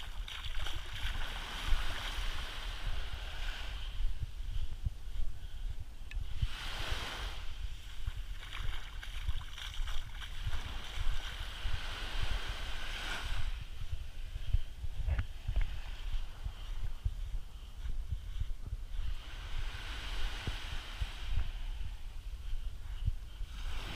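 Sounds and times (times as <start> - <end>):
small waves washing on sand: 0.0 - 4.8, 6.2 - 14.3, 19.2 - 22.3, 23.4 - 23.9
wind buffeting microphone: 0.0 - 23.9.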